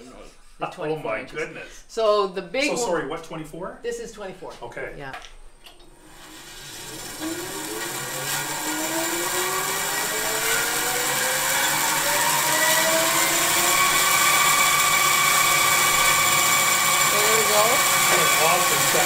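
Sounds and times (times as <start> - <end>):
bandsaw motor whine: 5.9 - 19.0.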